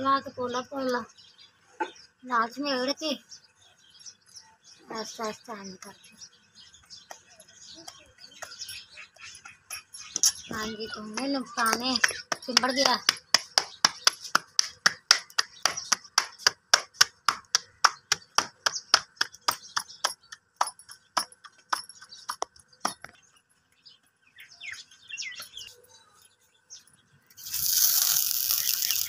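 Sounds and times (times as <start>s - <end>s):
water sizzling on hot griddle: 27.4s - 29.0s.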